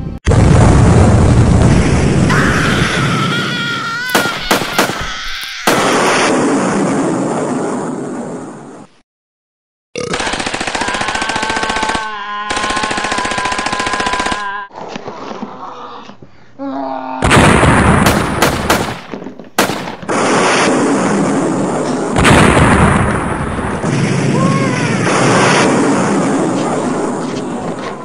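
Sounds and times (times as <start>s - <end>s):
explosions: 0.3s - 3.4s, 4.1s - 8.9s, 17.2s - 28.0s
gunfire blasts: 4.1s - 8.2s, 17.2s - 27.8s
rapid machine-gun fire: 4.2s - 5.1s, 10.0s - 14.4s, 17.3s - 21.3s.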